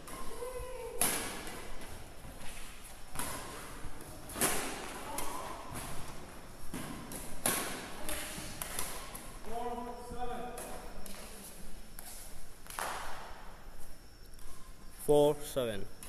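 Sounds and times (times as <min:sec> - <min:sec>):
badminton rackets hitting shuttlecock: 0:00.0 - 0:09.6.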